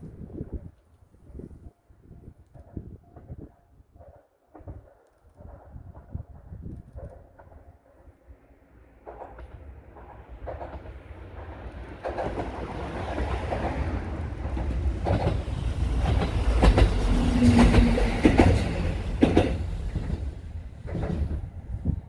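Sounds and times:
train wheels clacking on rail joints: 2.5 - 8.0, 9.0 - 22.0
diesel railcar engine rumble: 8.3 - 22.0.

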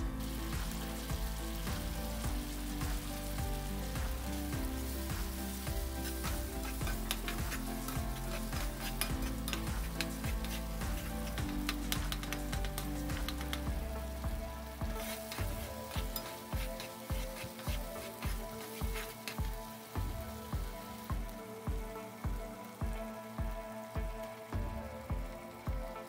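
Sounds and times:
paste sizzling in a frying pan: 0.0 - 26.0
soft background music: 0.0 - 26.0
metal spatula scraping a pan: 4.8 - 13.6, 14.9 - 19.4.

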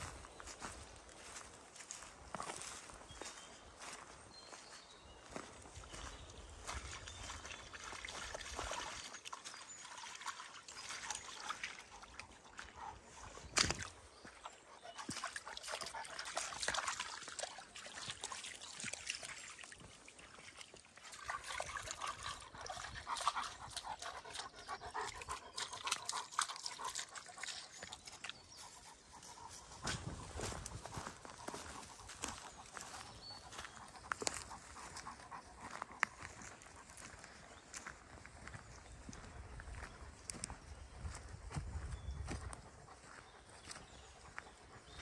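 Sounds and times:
paws crackling over dry leaves: 0.0 - 9.6, 21.5 - 45.0
dog sloshing in muddy puddle: 5.9 - 39.1.

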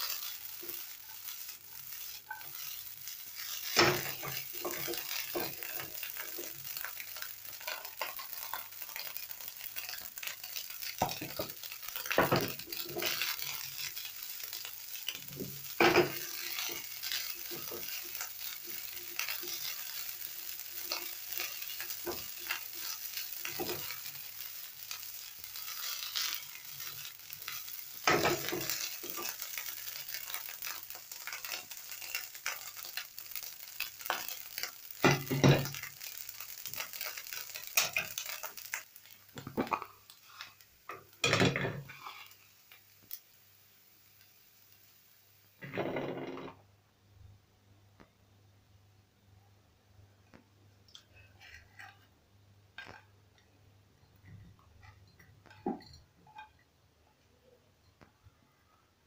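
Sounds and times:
scraping in a pan: 0.0 - 9.2, 9.8 - 33.0, 34.0 - 42.5, 51.0 - 52.2
rice sizzling in a pan: 0.0 - 46.6, 50.1 - 56.6.

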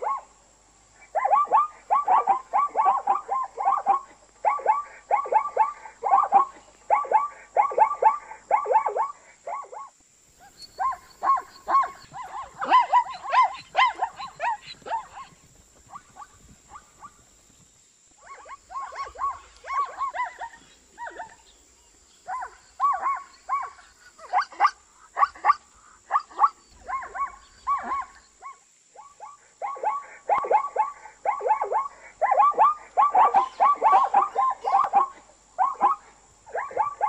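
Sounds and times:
zebra barking: 10.4 - 17.3, 18.2 - 21.6, 29.0 - 37.0.

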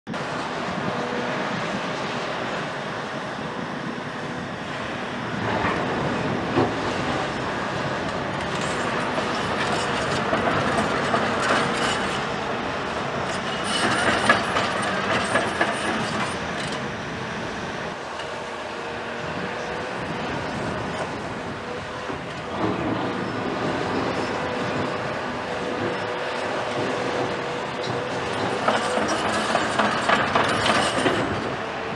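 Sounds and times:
excavator engine and hydraulics: 0.1 - 31.9.

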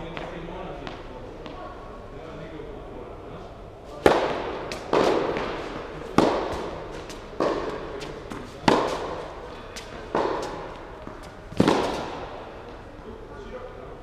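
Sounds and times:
rackets striking tennis ball: 3.9 - 12.8
ball bouncing: 4.0 - 9.2.

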